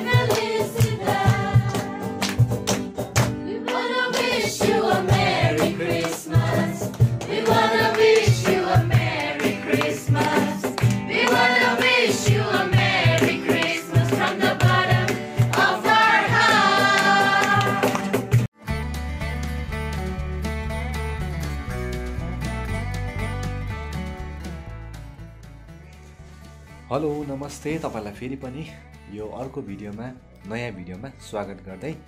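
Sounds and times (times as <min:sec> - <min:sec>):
group singing a carol: 0:00.0 - 0:02.2, 0:03.4 - 0:18.3
steady beat: 0:00.0 - 0:18.5.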